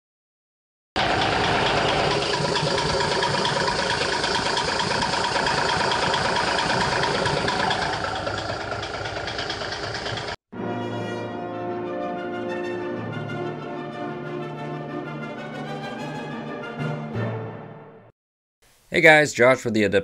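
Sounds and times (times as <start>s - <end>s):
diesel engine idling: 1.0s - 10.4s.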